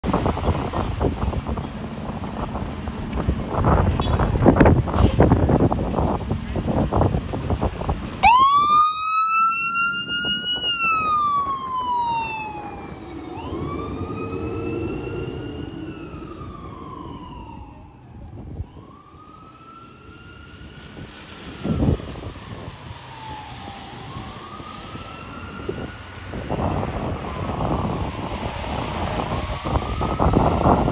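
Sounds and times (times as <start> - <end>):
fire engine siren wailing: 6.9 - 30.9.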